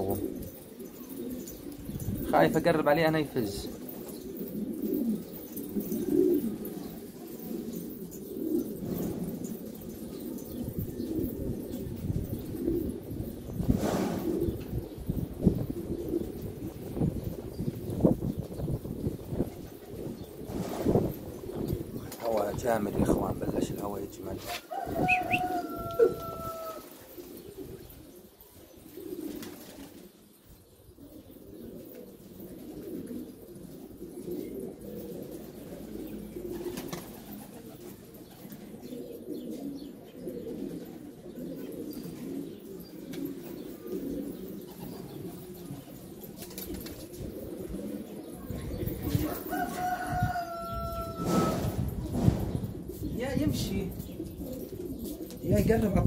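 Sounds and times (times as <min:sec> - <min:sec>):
pigeons cooing: 0:00.0 - 0:56.0
drawn-out falling call: 0:24.7 - 0:27.1.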